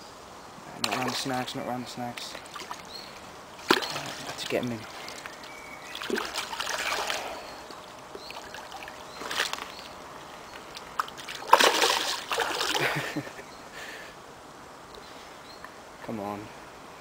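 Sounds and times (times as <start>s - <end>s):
fish thrashing and splashing: 3.6s - 13.0s.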